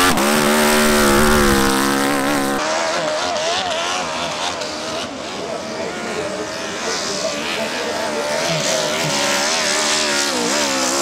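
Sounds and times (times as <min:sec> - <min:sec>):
thin wavering engine note: 0:00.0 - 0:02.6
motorcycle engine at high revs: 0:00.0 - 0:11.0.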